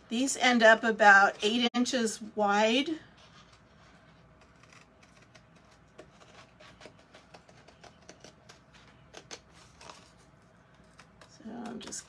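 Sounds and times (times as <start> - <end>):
paper rustling: 3.1 - 12.0
scissors snipping paper: 4.4 - 12.0.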